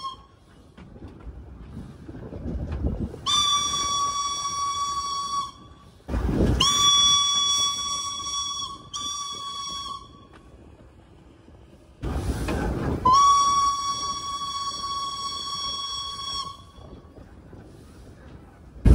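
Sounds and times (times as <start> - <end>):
steam whistle blasts: 0.0 - 0.5, 3.2 - 10.4, 13.0 - 17.0.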